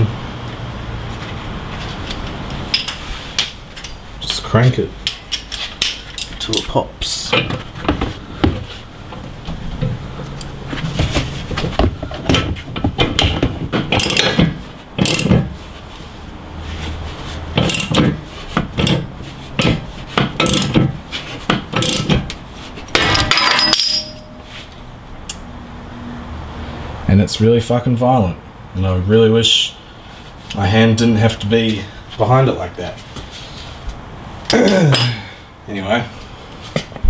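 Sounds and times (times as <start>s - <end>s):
wrench clicking and clinking: 5.0s - 6.4s, 13.9s - 14.4s, 15.0s - 15.4s, 17.6s - 18.1s, 18.8s - 20.8s, 21.7s - 22.2s, 23.0s - 24.4s.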